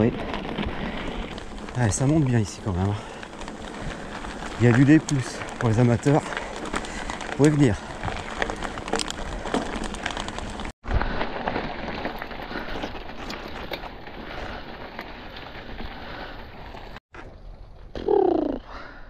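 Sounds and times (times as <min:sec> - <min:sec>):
bike tyres crackling on trail: 0:00.0 - 0:19.0.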